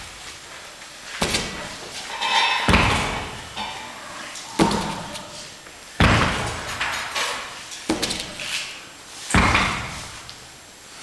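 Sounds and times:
dumbbell thudding on weight plates: 1.2 - 3.9, 4.5 - 5.2, 6.0 - 7.2, 9.3 - 10.2.

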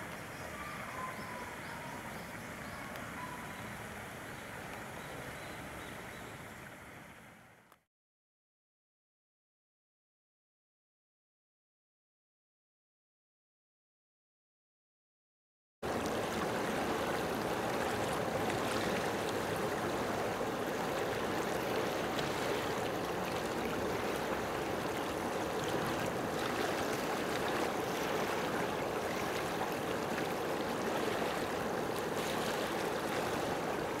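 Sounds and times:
flowing water rushing: 0.0 - 7.6, 15.8 - 34.0.

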